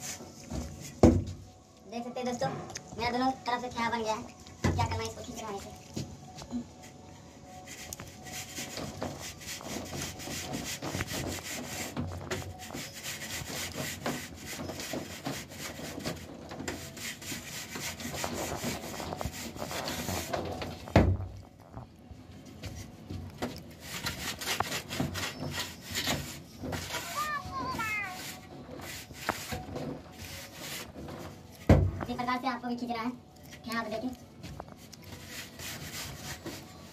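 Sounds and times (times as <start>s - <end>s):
straight edge scraping wet plaster: 7.7s - 20.8s, 23.4s - 31.4s, 35.0s - 36.9s.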